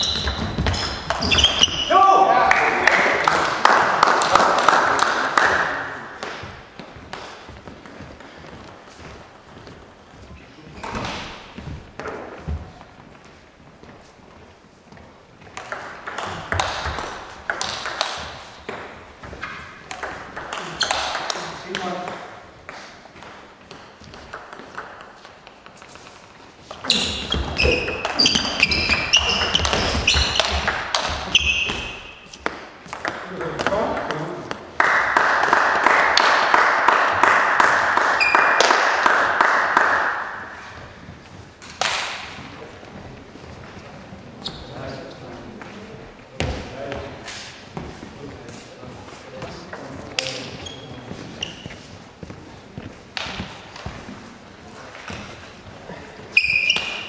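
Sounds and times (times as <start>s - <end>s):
table tennis ball bouncing: 0.0s - 1.8s, 6.2s - 9.8s, 15.4s - 26.0s, 26.7s - 40.7s
high ringing squeaks: 0.0s - 1.9s.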